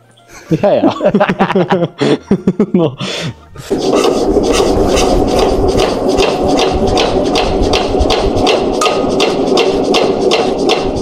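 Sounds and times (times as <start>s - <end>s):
tractor engine hand cranked: 4.0s - 10.9s.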